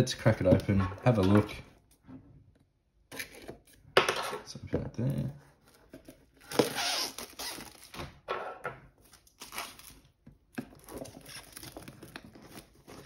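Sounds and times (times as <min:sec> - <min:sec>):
plastic wrap crinkling and tearing: 0:06.4 - 0:08.2, 0:09.0 - 0:13.0.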